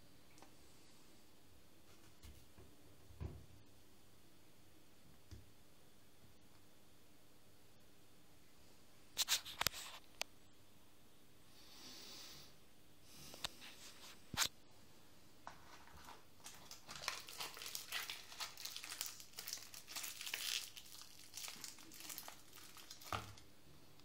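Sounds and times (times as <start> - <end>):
cigarette pack being crumpled: 15.7 - 23.4.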